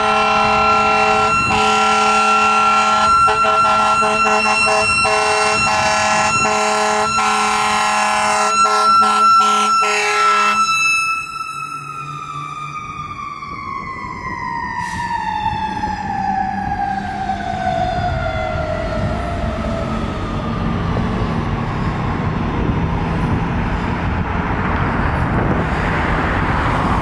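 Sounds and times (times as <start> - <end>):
fire engine air horns: 0.0 - 12.2, 14.7 - 20.0
mechanical siren: 0.0 - 22.8.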